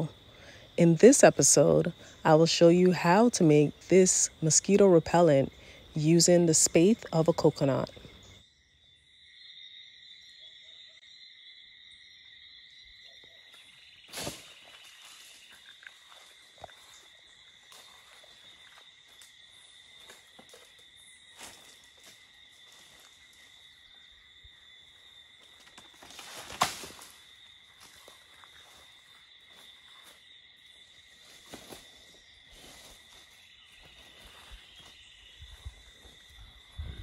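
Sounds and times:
insects chirring: 0.0s - 37.0s
coconut spathe crashing to ground: 26.1s - 27.2s.

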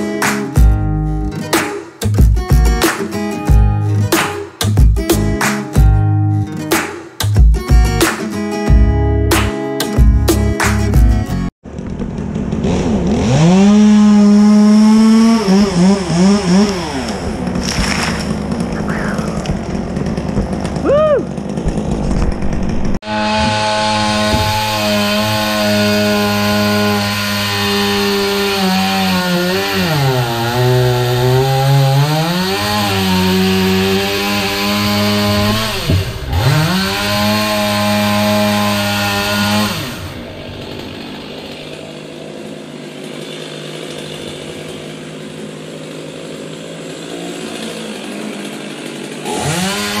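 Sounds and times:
chainsaw running: 11.7s - 50.0s.

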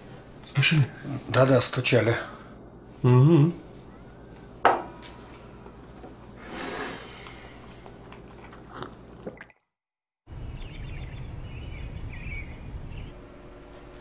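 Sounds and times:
sipping from a mug: 6.4s - 9.6s
chewing: 7.8s - 9.6s.

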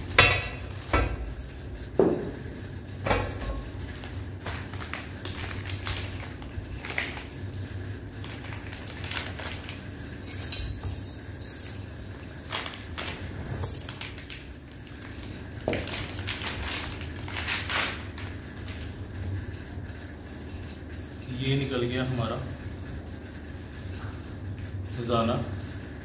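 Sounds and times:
plastic packaging crinkling: 4.0s - 10.0s, 12.3s - 19.0s.

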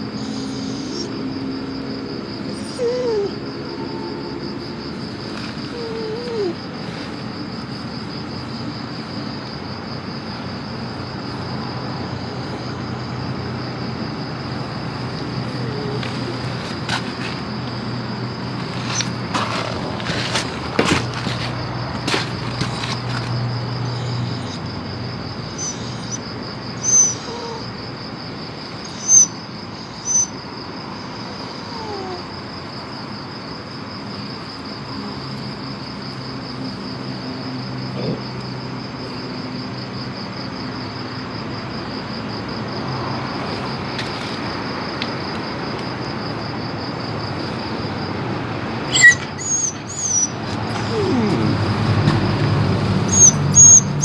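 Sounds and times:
crickets trilling: 0.0s - 54.0s
low falling cry: 50.7s - 51.9s.

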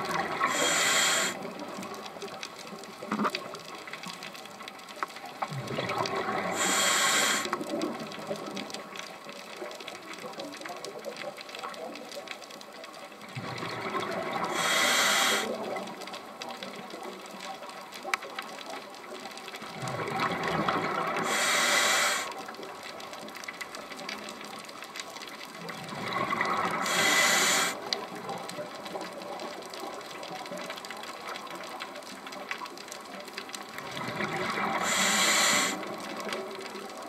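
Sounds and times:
steady watery noise: 0.0s - 37.0s
diver breathing through regulator: 0.4s - 1.4s, 6.5s - 7.6s, 14.4s - 15.5s, 21.2s - 22.4s, 26.8s - 27.8s, 34.7s - 35.8s.

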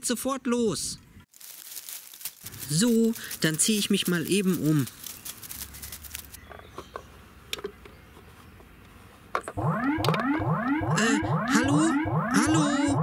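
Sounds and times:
synthesizer swooping tones: 9.6s - 13.0s.

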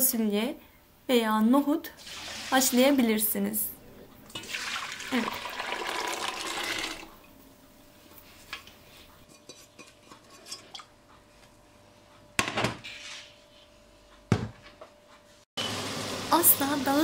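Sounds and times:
beans and water pouring: 2.0s - 2.8s, 4.3s - 7.2s.

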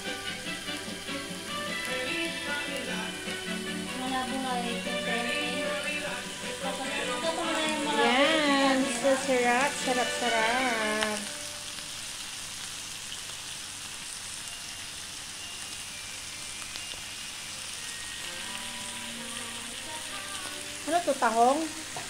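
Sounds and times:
singing or music: 0.0s - 11.6s, 18.2s - 22.0s
meat sizzling on grill: 0.0s - 22.0s.

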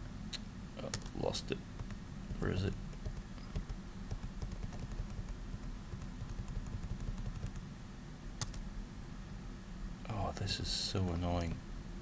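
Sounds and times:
steady low hum: 0.0s - 12.0s
computer keyboard clicking: 1.8s - 7.6s, 8.4s - 8.6s.

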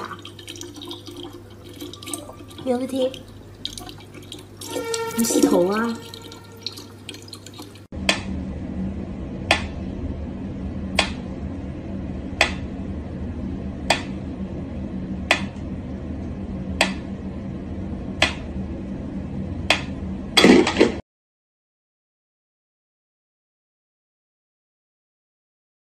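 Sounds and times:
water running from a tap: 0.0s - 7.9s
low hum: 0.0s - 21.0s.

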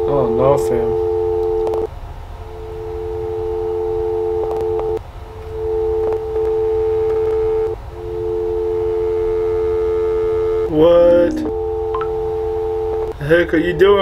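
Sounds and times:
loud electronic drone: 9.8s - 12.7s.

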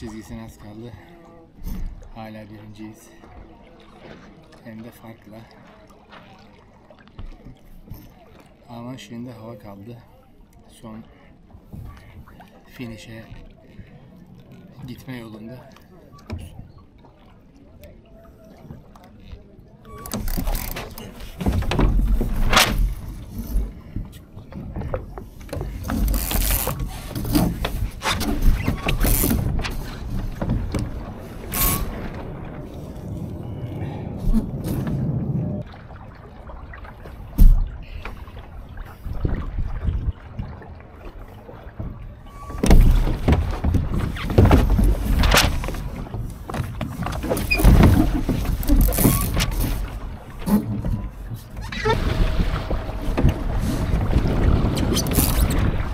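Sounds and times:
water splashing against a hull: 0.0s - 55.9s
low uneven rumble: 15.6s - 55.9s
boat fittings clicking and knocking: 20.0s - 31.9s.

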